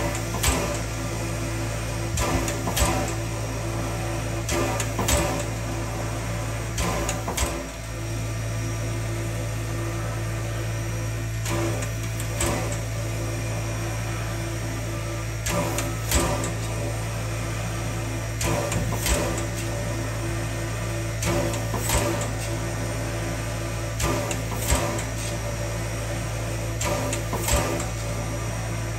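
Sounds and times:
air pump sharp strokes: 2.1s - 3.4s, 26.8s - 28.0s.

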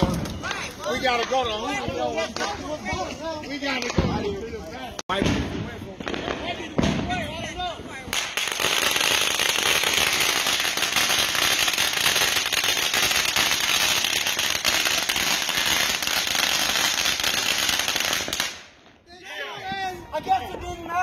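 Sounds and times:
firecrackers crackling: 0.0s - 19.0s.

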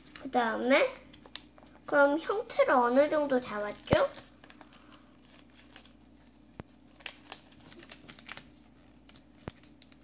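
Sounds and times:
paper rustling and crinkling: 3.4s - 10.0s
soft paper ticks: 5.7s - 10.0s.

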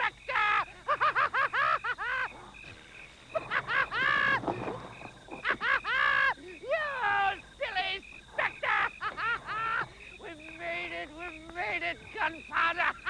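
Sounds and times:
man laughing wildly: 0.0s - 2.4s, 3.3s - 4.5s, 5.3s - 7.0s, 7.6s - 10.2s, 12.4s - 13.0s.

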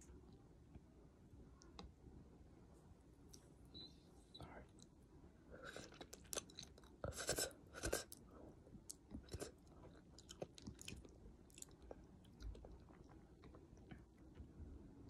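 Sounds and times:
wet chewing with mouth clicks: 5.6s - 8.2s, 8.8s - 14.2s.

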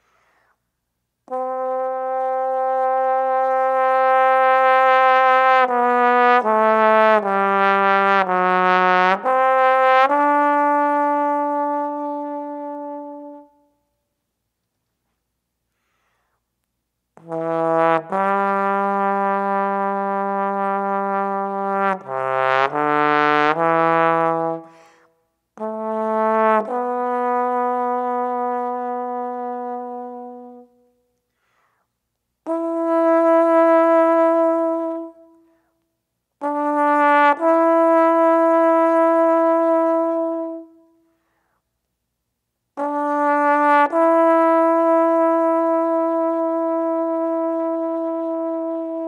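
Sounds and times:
trombone solo: 1.3s - 13.7s, 17.2s - 24.9s, 25.6s - 30.9s, 32.4s - 35.4s, 36.4s - 40.9s, 42.8s - 49.0s.

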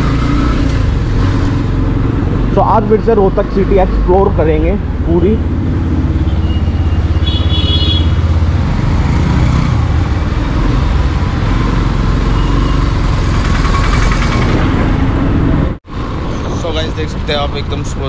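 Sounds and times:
road and wind noise: 0.0s - 18.0s
horn beep: 6.2s - 8.2s, 12.2s - 12.9s.

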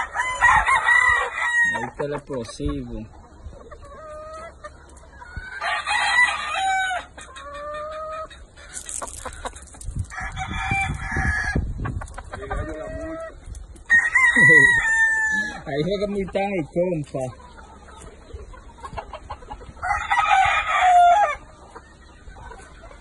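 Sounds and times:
roosters crowing: 0.0s - 2.3s, 3.9s - 16.6s, 19.0s - 21.9s.

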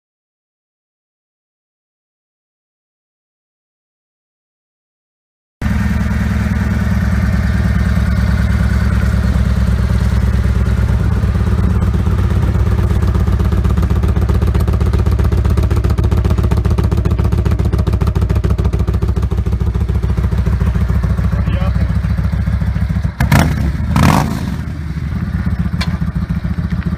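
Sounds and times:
motorcycle engine idling: 5.6s - 26.9s.

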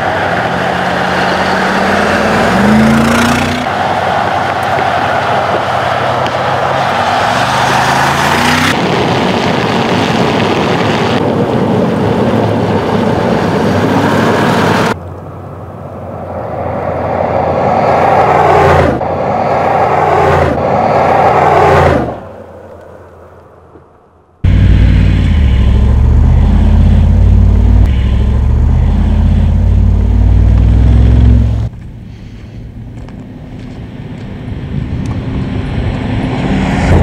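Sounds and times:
car engine accelerating: 0.0s - 8.8s, 24.4s - 31.7s.

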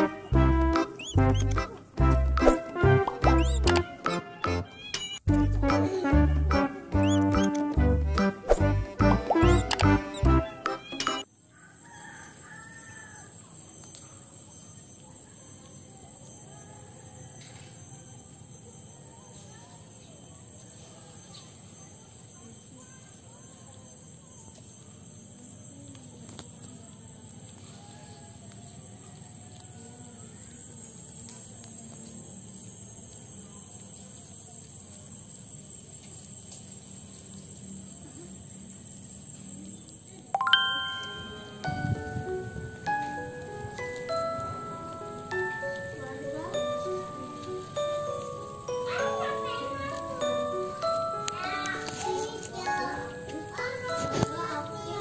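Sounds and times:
faint outdoor background noise: 0.0s - 55.0s
insect trill: 0.8s - 2.5s, 9.3s - 55.0s
chime-like background music: 9.4s - 11.3s, 40.4s - 55.0s
rooster crowing faintly: 11.5s - 13.6s, 27.6s - 30.4s.

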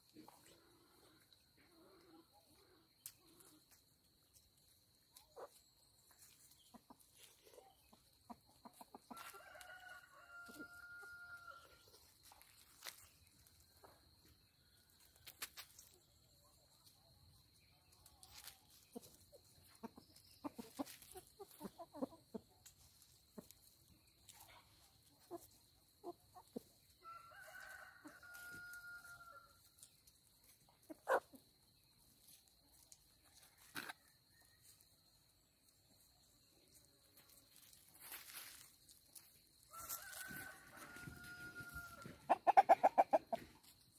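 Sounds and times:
rooster crowing: 9.1s - 11.8s, 27.0s - 29.6s, 39.7s - 42.2s.

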